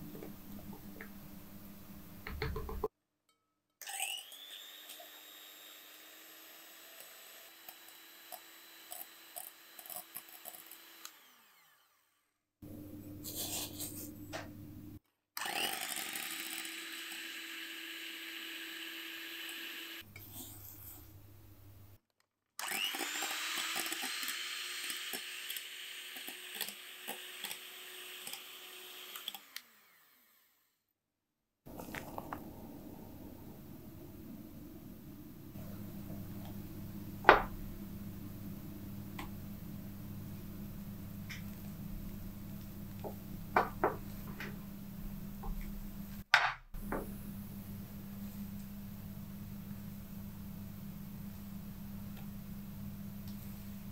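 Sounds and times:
electric hand mixer running: 0:03.9 - 0:12.2, 0:15.4 - 0:20.1, 0:22.6 - 0:30.6.

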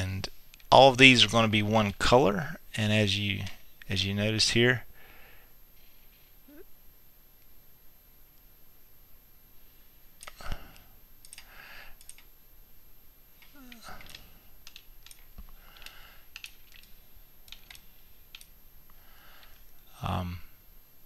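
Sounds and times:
mouse and keyboard clicks: 0:10.2 - 0:10.4.

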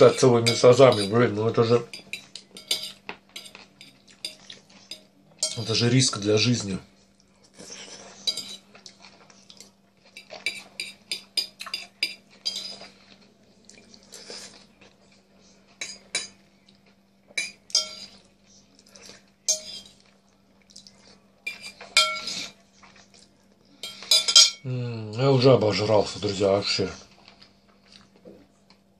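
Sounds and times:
fork scraping a plate: 0:00.0 - 0:05.9, 0:07.5 - 0:09.5, 0:10.1 - 0:13.2, 0:17.7 - 0:18.3, 0:19.0 - 0:20.0, 0:21.5 - 0:23.0.

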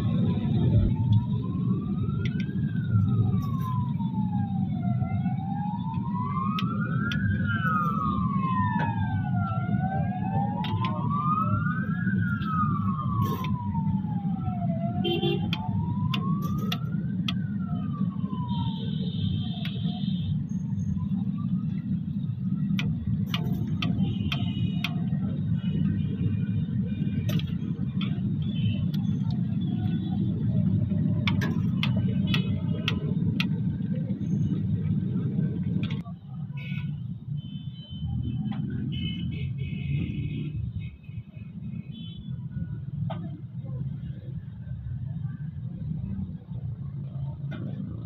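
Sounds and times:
siren wailing: 0:00.0 - 0:37.3.

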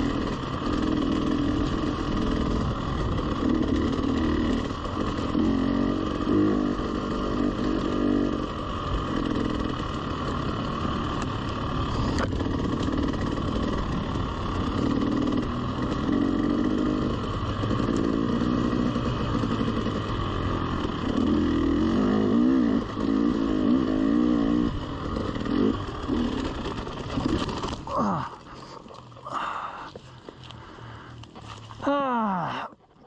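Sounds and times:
dirt bike engine revving: 0:00.0 - 0:32.5.

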